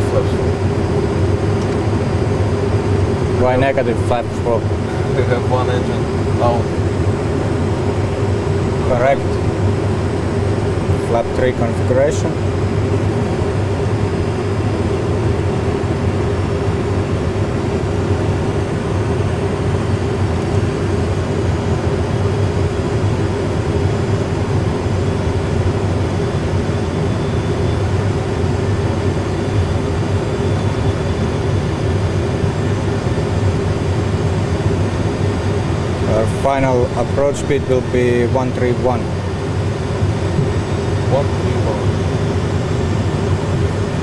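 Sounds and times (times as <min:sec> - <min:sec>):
aircraft engine and airflow noise: 0:00.0 - 0:44.0
constant low hum: 0:00.0 - 0:44.0
second low hum: 0:36.0 - 0:44.0.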